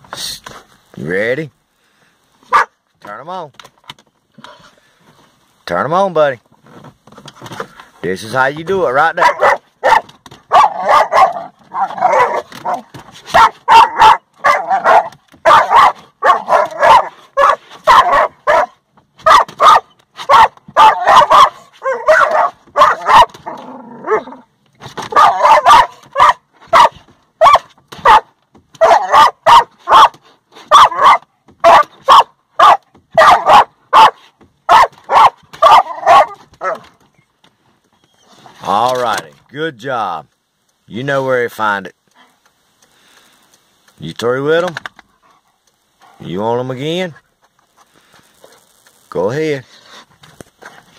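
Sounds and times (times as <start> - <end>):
puppy barking and yipping: 2.5 - 2.7, 9.2 - 24.3, 25.1 - 36.9.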